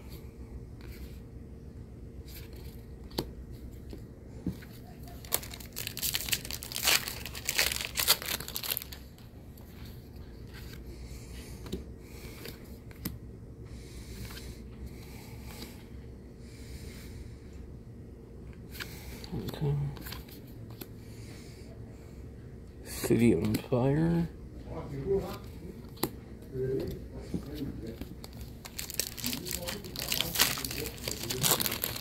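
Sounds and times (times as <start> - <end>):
foil wrapper crinkling and tearing: 5.0 - 9.2, 28.2 - 32.0.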